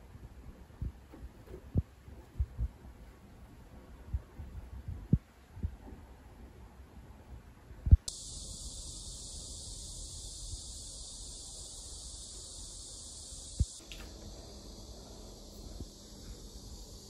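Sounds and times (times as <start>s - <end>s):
insect chorus drone: 8.1s - 17.0s.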